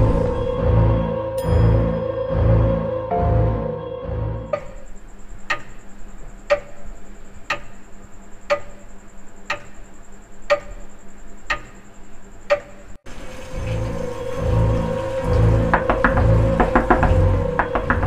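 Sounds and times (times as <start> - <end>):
low pulsing horror music: 0.0 - 5.8, 13.1 - 18.0
clock ticking: 4.5 - 13.0.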